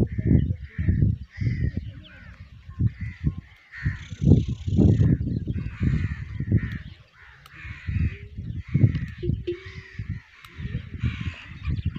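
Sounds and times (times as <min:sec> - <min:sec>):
camels calling: 0:00.0 - 0:11.9.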